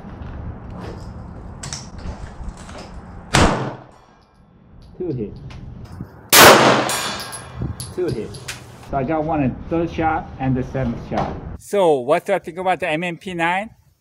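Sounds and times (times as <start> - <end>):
pistol shot with echo: 3.3 - 3.9, 6.3 - 7.4.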